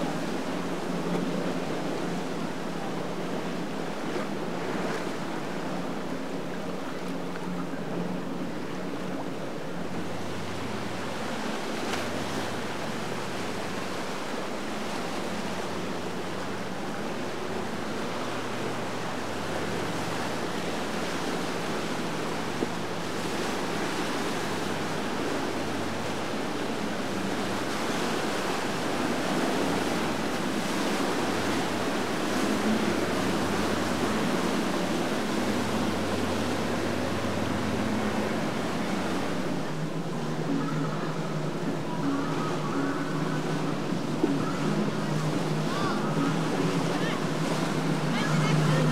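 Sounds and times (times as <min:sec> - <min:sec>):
outboard motors humming: 0:00.0 - 0:48.9
tidal current rushing: 0:09.8 - 0:48.9.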